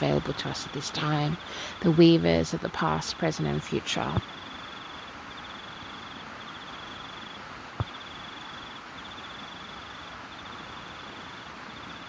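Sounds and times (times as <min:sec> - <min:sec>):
steady hiss: 0:00.0 - 0:12.0
crickets chirping: 0:02.9 - 0:12.0.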